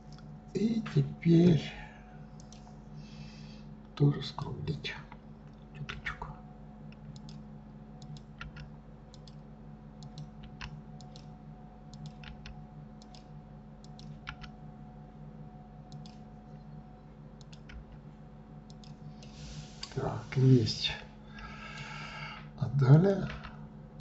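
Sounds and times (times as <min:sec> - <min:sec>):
steady low hum: 0:00.0 - 0:24.0
computer mouse clicks: 0:02.4 - 0:02.7, 0:06.9 - 0:07.4, 0:08.0 - 0:09.4, 0:10.0 - 0:11.3, 0:11.9 - 0:14.6, 0:15.9 - 0:16.2, 0:17.4 - 0:18.0, 0:18.7 - 0:20.0
keyboard clicks: 0:06.9 - 0:07.4, 0:08.0 - 0:09.4, 0:10.0 - 0:11.3, 0:11.9 - 0:14.6, 0:15.9 - 0:16.2, 0:17.4 - 0:18.0, 0:18.7 - 0:20.0.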